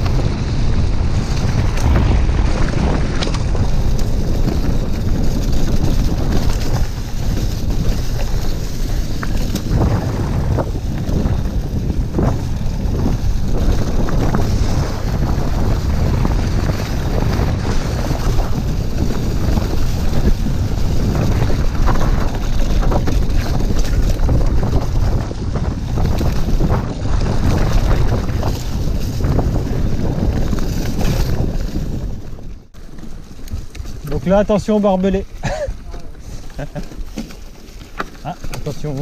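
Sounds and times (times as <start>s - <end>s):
bike knocks and rattles: 0.0s - 39.0s
wind buffeting microphone: 0.0s - 39.0s.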